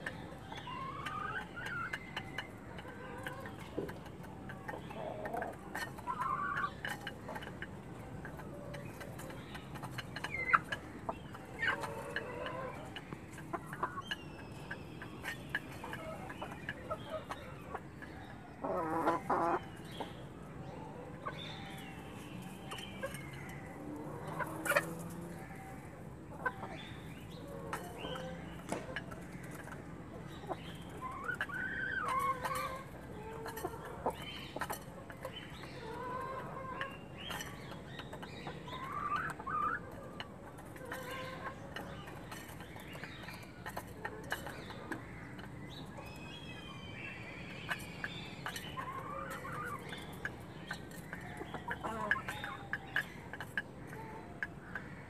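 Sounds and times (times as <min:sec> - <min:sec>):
beaks pecking grain from a bowl: 0:00.0 - 0:55.0
hens clucking: 0:00.0 - 0:55.0.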